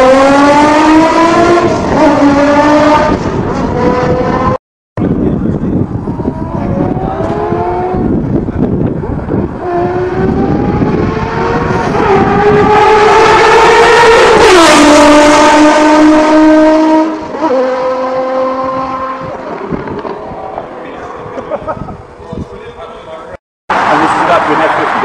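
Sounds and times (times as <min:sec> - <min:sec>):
sports car accelerating past: 0:00.0 - 0:04.6, 0:09.3 - 0:21.4.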